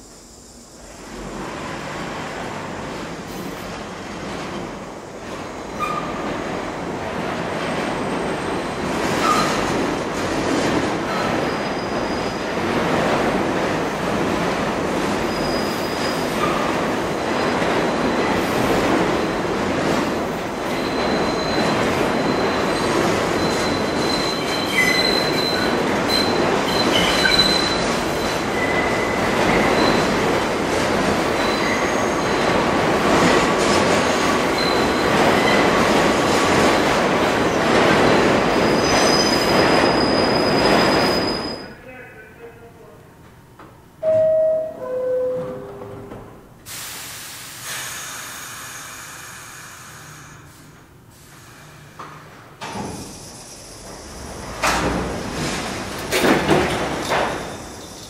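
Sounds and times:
subway train rumbling and rattling: 0.0 - 58.0
train wheels squealing: 5.7 - 6.2, 8.0 - 9.7, 11.1 - 12.6, 15.2 - 16.7, 20.6 - 30.2, 31.4 - 32.4, 34.2 - 35.8, 38.5 - 41.8, 57.1 - 58.0.

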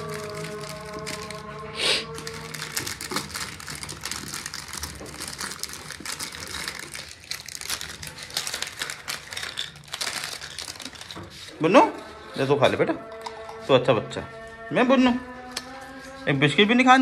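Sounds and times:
biscuits snapping: 0.0 - 11.2
plastic wrapper crinkling: 0.0 - 11.7.

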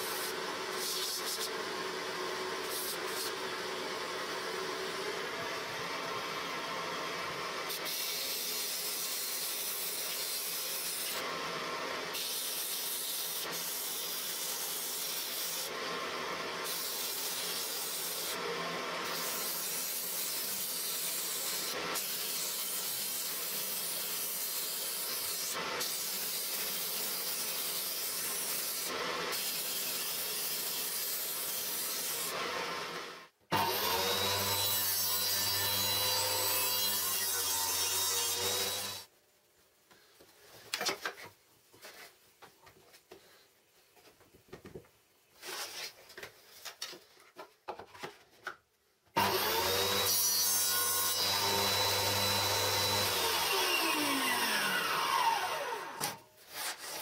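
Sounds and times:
table saw motor hum: 49.2 - 56.2.

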